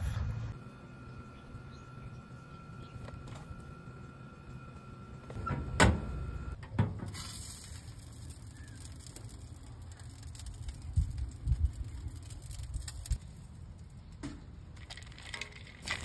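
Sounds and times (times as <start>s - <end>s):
low hum: 0.0s - 6.6s
metal door clanking shut: 5.4s - 7.0s.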